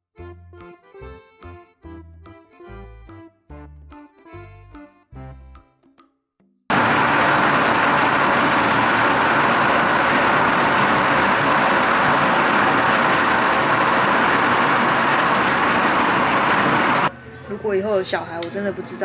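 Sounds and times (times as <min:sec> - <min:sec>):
firecrackers crackling: 0:06.7 - 0:17.1.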